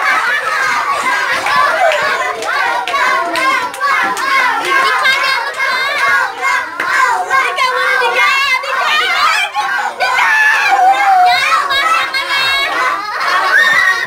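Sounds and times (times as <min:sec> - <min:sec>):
children shouting and chattering: 0:00.0 - 0:14.0
sharp claps: 0:01.2 - 0:07.1.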